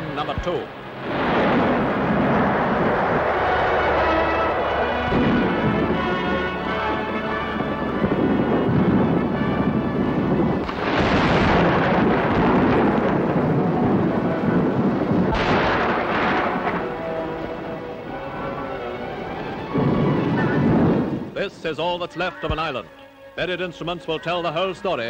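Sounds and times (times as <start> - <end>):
loud explosion blasts: 0.5 - 18.2, 19.5 - 21.4
thunder-like explosion rumble: 0.6 - 21.4
background music: 2.0 - 25.0.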